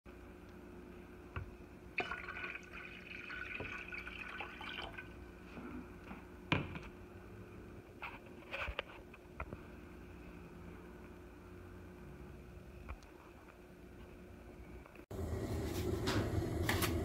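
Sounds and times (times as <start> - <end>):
water pouring into kettle: 2.0 - 5.2.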